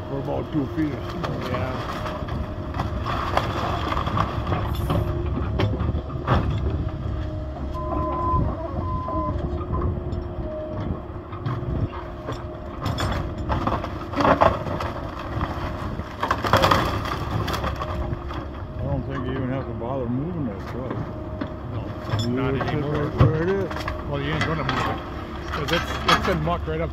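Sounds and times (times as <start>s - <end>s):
excavator diesel engine running: 0.0s - 26.9s
loud clanks and crunches: 0.5s - 7.4s, 10.9s - 19.8s, 20.6s - 26.9s
short beeps: 7.7s - 9.9s.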